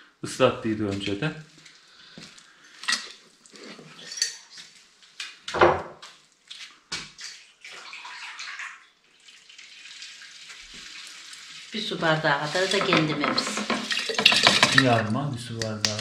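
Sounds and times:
splashing: 0:06.4 - 0:16.0
plastic containers knocking: 0:12.5 - 0:16.0.

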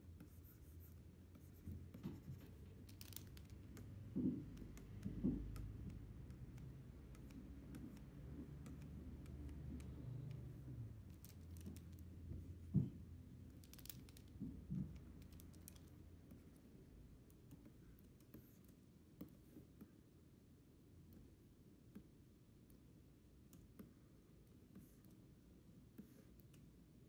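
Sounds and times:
stylus pen tapping on screen: 0:03.1 - 0:10.4.

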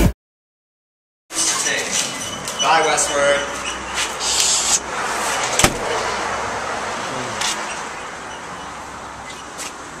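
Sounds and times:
road traffic noise: 0:01.3 - 0:10.0
sharp knock: 0:05.6 - 0:05.9.

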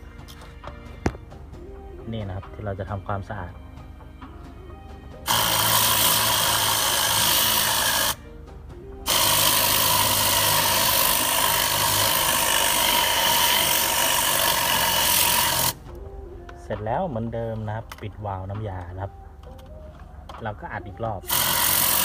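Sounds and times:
air cleaning gun hissing: 0:05.2 - 0:08.2, 0:09.0 - 0:15.8, 0:21.3 - 0:22.0.

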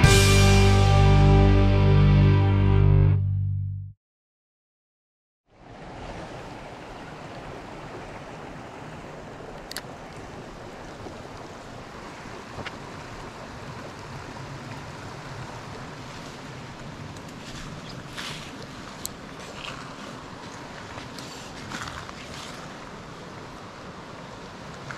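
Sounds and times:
stream running over rocks: 0:05.6 - 0:24.9.

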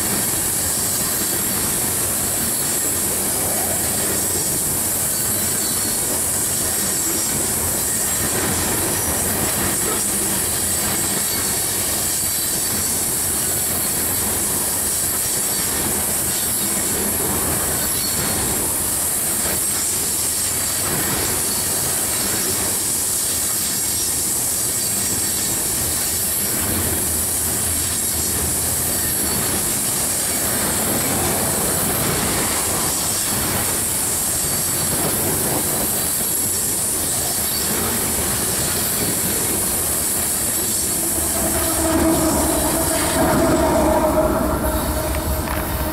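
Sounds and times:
train wheels rumbling on rail: 0:00.0 - 0:45.9
wheels clacking over rail joints: 0:00.0 - 0:45.9
high-pitched flange squeal: 0:38.9 - 0:45.9.

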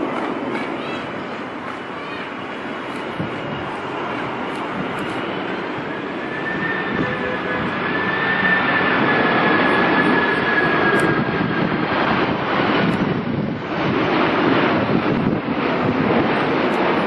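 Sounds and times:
thin high whine: 0:00.0 - 0:11.4
jet airliner engine roar: 0:00.0 - 0:17.0.

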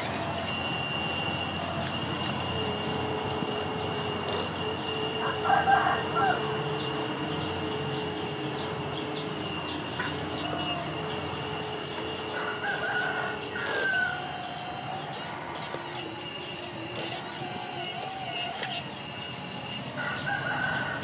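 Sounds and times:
high-pitched whine: 0:00.0 - 0:21.0
rooster crowing: 0:05.0 - 0:07.0, 0:10.4 - 0:15.6, 0:17.7 - 0:21.0.

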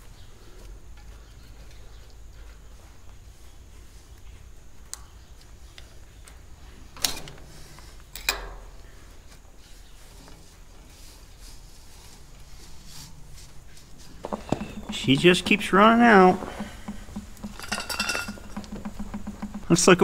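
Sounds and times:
sharp metal clinks: 0:17.6 - 0:18.6.

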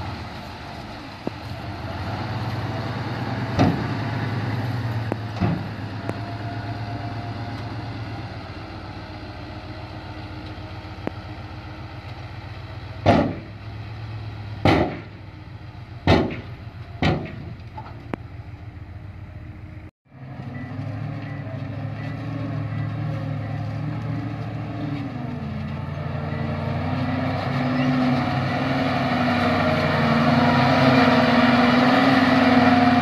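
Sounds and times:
truck engine running: 0:00.0 - 0:33.0
sharp bangs from truck: 0:03.3 - 0:04.3, 0:05.1 - 0:06.2, 0:13.0 - 0:13.6, 0:14.6 - 0:15.3, 0:16.0 - 0:18.0.

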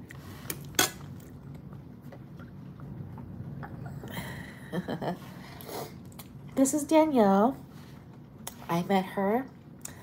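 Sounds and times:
soft chewing: 0:00.0 - 0:04.1, 0:05.2 - 0:06.6
low steady hum: 0:00.0 - 0:10.0.

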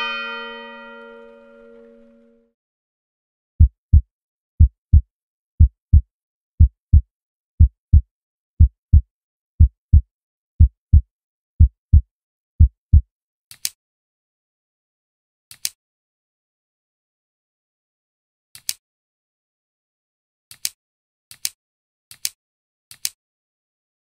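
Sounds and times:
heartbeat double thumps: 0:03.6 - 0:04.0, 0:04.6 - 0:05.0, 0:05.6 - 0:06.0, 0:06.6 - 0:07.0, 0:07.6 - 0:08.0, 0:08.6 - 0:09.0, 0:09.6 - 0:10.0, 0:10.6 - 0:11.0, 0:11.6 - 0:12.0, 0:12.6 - 0:13.0.

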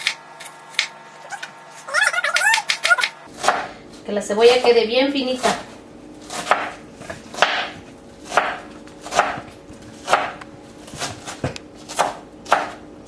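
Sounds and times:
knife chopping on cutting board: 0:02.5 - 0:03.7, 0:06.3 - 0:12.8.

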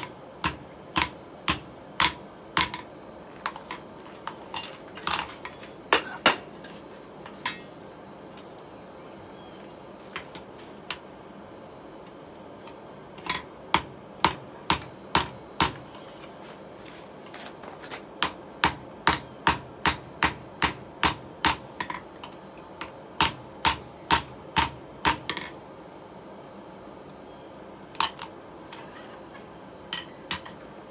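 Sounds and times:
hammer striking metal on anvil: 0:05.9 - 0:06.8, 0:07.4 - 0:08.1.

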